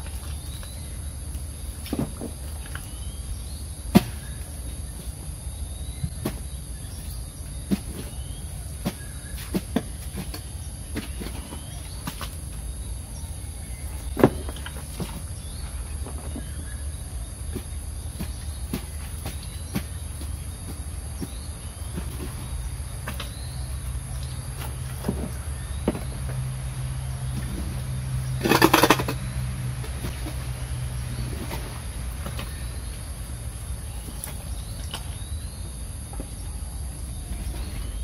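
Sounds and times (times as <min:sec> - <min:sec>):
hoe scraping wet mud: 0:05.8 - 0:33.0.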